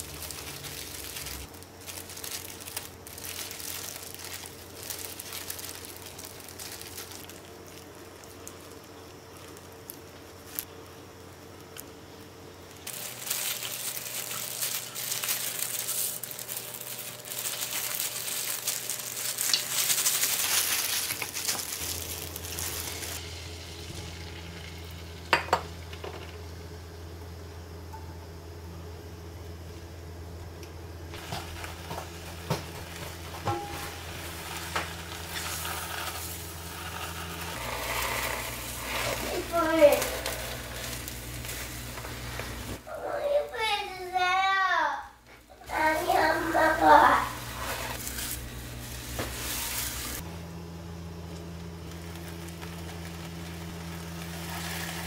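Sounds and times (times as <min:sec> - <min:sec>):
food sizzling in a frying pan: 0:12.8 - 0:26.2, 0:31.2 - 0:42.8, 0:45.7 - 0:50.2, 0:51.7 - 0:55.0.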